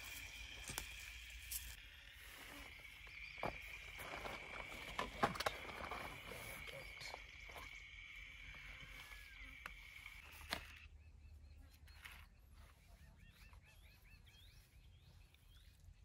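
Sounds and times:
high-pitched insect drone: 0.0 - 10.9
bird chirping: 0.0 - 16.0.

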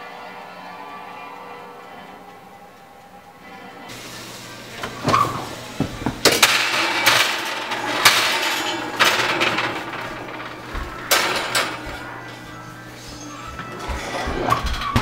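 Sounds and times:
metal clanking on wire oven racks: 4.7 - 12.5, 13.6 - 15.0
oven door squeak: 4.8 - 5.5, 13.0 - 15.0.

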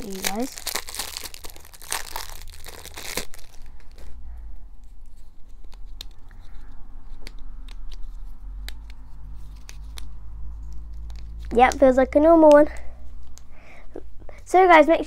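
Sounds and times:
plastic wrapper crinkling and tearing: 0.0 - 4.2.

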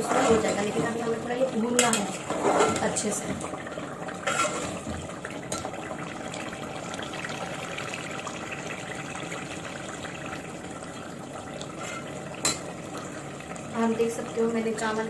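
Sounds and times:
gravy bubbling and sizzling: 0.0 - 15.0
ladle clinking: 11.8 - 12.7.

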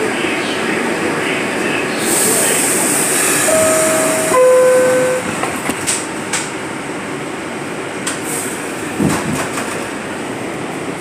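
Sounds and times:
standing train noise: 0.0 - 11.0
train door chime: 3.4 - 5.6.

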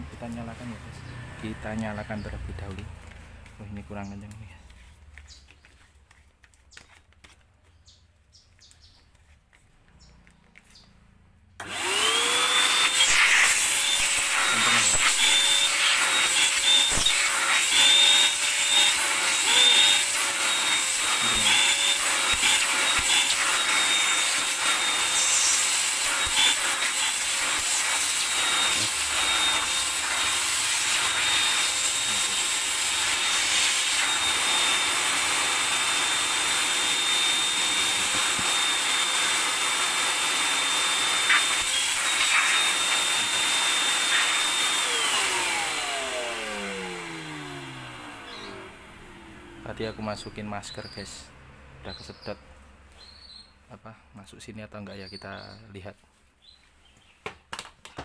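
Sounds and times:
motor winding down: 11.6 - 50.0
vacuum cleaner running: 11.6 - 50.0.

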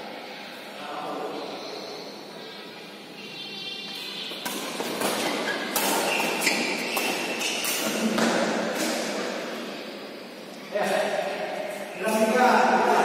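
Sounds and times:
rackets striking shuttlecock: 4.3 - 9.2.

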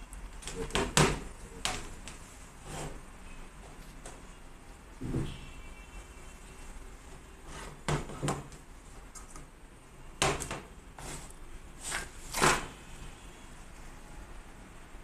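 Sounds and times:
knocks and rustles on a desk: 0.4 - 3.0, 5.0 - 5.4, 7.6 - 8.6, 10.2 - 10.7.

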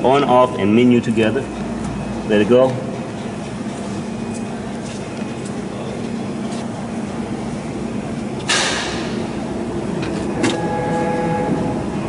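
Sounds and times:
low machine hum: 0.0 - 12.0.

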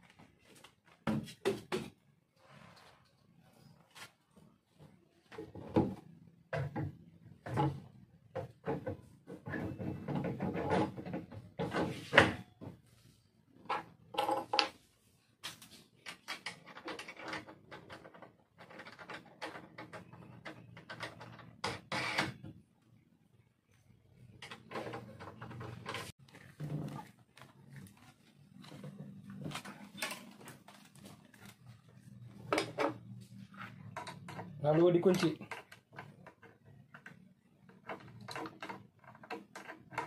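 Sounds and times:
plastic and metal parts clattering: 15.9 - 22.5, 24.2 - 40.0.

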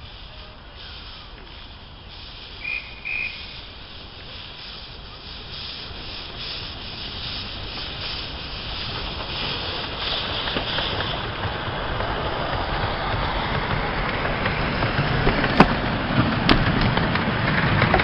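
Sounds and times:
steam hissing and running gear: 0.0 - 18.0
steam locomotive whistle toots: 2.2 - 6.1.

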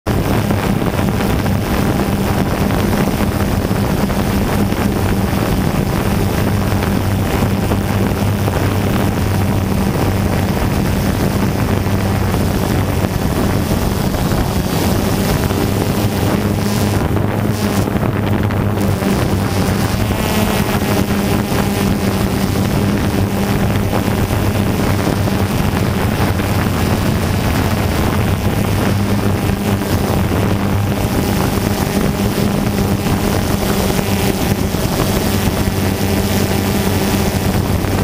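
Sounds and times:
wind noise on microphone: 0.0 - 38.0
drone motors and propellers: 0.1 - 38.0.

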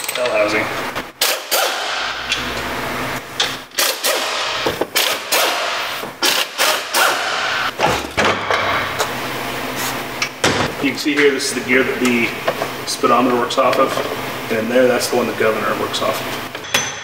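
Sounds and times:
air impact wrench hammering: 1.2 - 2.5, 3.4 - 9.1.

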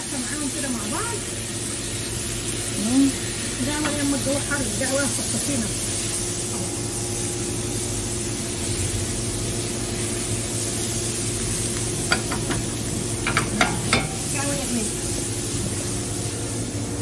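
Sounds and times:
meat and peppers sizzling in pan: 0.0 - 17.0
spatula knocking pan: 12.0 - 14.3.

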